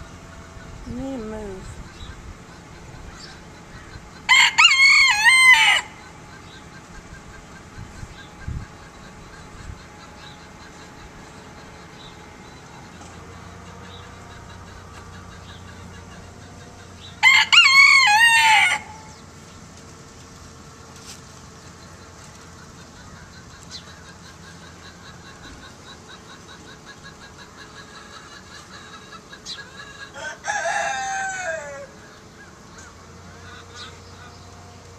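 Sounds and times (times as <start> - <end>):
rooster crowing: 4.3 - 6.2, 17.2 - 19.2, 29.8 - 32.6.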